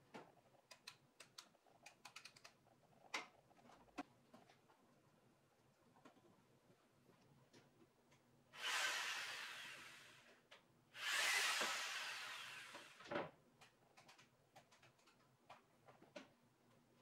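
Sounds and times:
jigsaw running: 0:08.6 - 0:10.3, 0:11.0 - 0:13.1.

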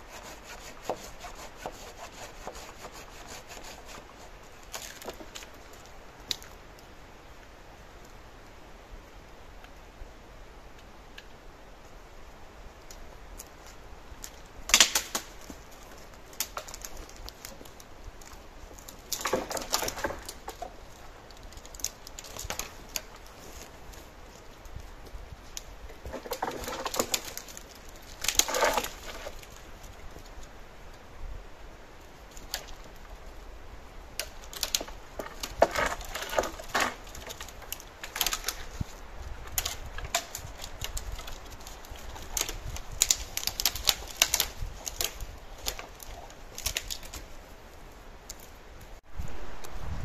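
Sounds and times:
sticks and twigs snapping: 0:12.8 - 0:24.8, 0:25.5 - 0:29.6, 0:34.2 - 0:47.4, 0:48.3 - 0:48.5.

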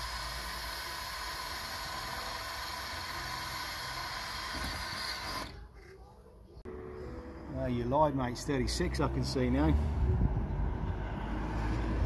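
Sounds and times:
cordless drill drilling: 0:00.0 - 0:05.6.

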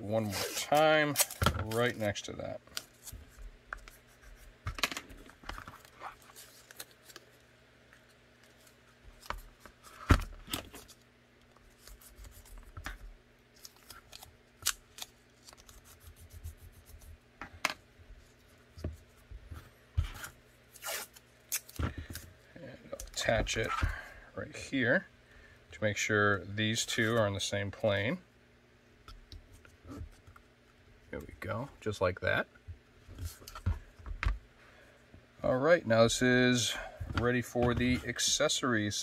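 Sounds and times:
tape crackling and tearing: 0:05.7 - 0:07.4, 0:11.7 - 0:17.0, 0:20.1 - 0:22.2.

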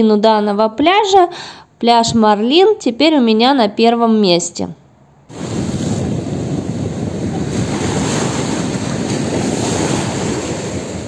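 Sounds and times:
waves breaking on sandy beach: 0:05.3 - 0:11.0
wind buffeting microphone: 0:05.3 - 0:11.0.

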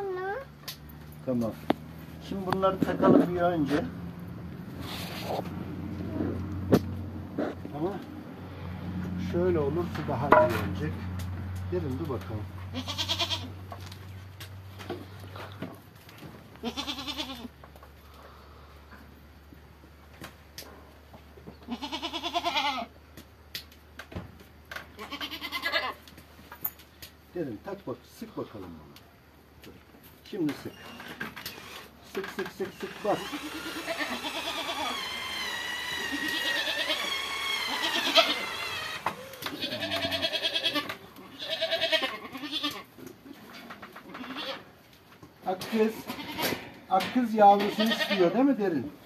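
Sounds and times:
light knocks of wood and tools: 0:09.9 - 0:12.3
goat bleating: 0:12.6 - 0:13.7, 0:16.6 - 0:17.6, 0:21.6 - 0:22.9, 0:25.0 - 0:26.1, 0:32.6 - 0:43.0, 0:44.0 - 0:44.7, 0:45.9 - 0:46.6, 0:47.6 - 0:48.5
cordless drill driving screw into wood: 0:32.8 - 0:39.3.

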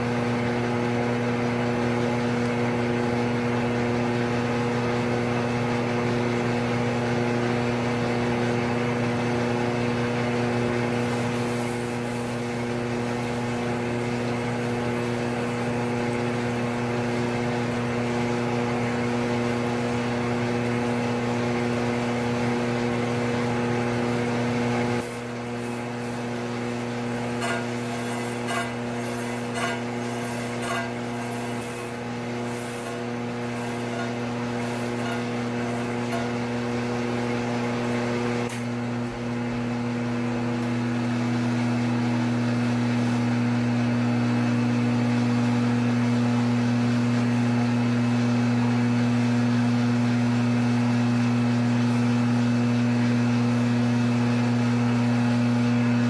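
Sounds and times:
electric motor hum: 0:00.0 - 0:56.0
grinding wheel grinding metal: 0:10.7 - 0:38.6.

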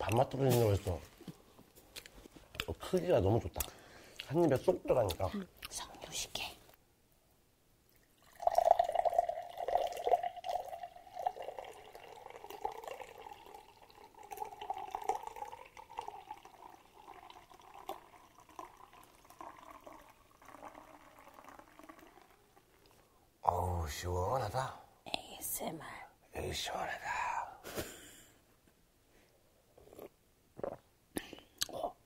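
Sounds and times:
liquid pouring into a mug: 0:07.9 - 0:23.1.

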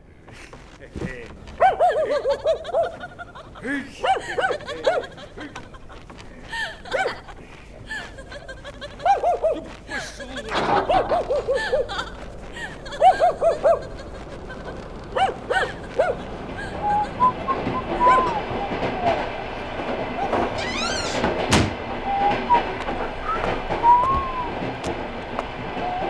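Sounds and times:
high-pitched laughter: 0:01.8 - 0:19.2
breathy rush of air: 0:03.0 - 0:09.0, 0:09.7 - 0:20.3.

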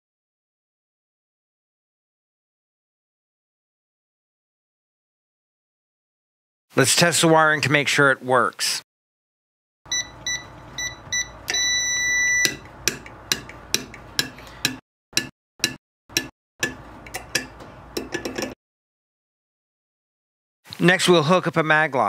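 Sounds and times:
keypad beeping: 0:09.9 - 0:12.6.

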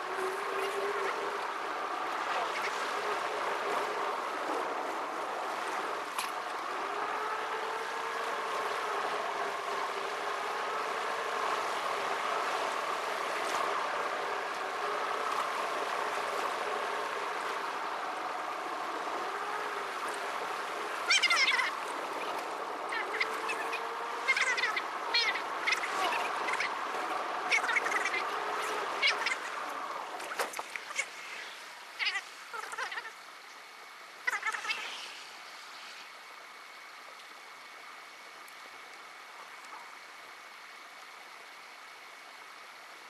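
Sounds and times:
sped up car engine drone: 0:00.0 - 0:30.2.

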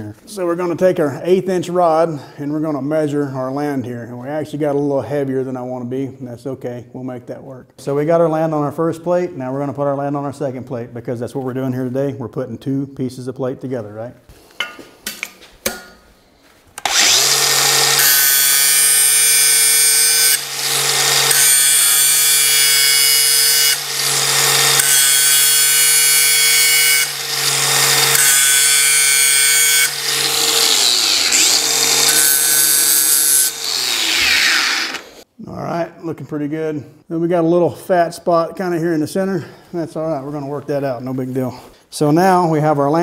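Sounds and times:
angle grinder grinding steel: 0:16.8 - 0:35.2
grinder motor running freely: 0:16.8 - 0:35.2.

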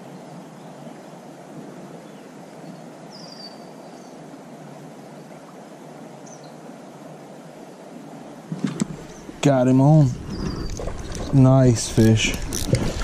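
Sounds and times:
creek running over rocks: 0:00.0 - 0:13.0
bird chirp: 0:02.0 - 0:04.2, 0:10.2 - 0:11.4.

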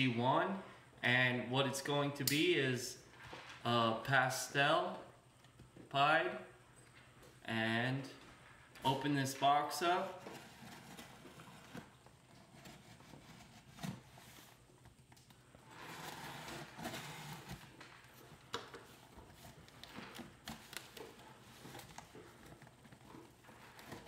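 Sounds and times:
packing tape peeling off cardboard: 0:10.4 - 0:24.0.

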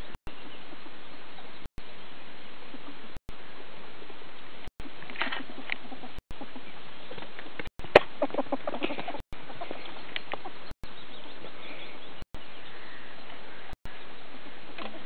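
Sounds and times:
ferrets clucking chuckles: 0:05.5 - 0:06.8, 0:07.9 - 0:10.6.

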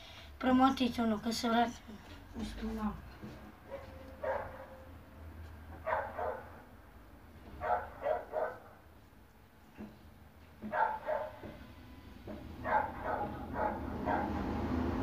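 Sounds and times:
dog barking: 0:03.6 - 0:04.9, 0:05.8 - 0:06.6, 0:07.6 - 0:08.8, 0:10.6 - 0:11.6, 0:12.6 - 0:14.4.

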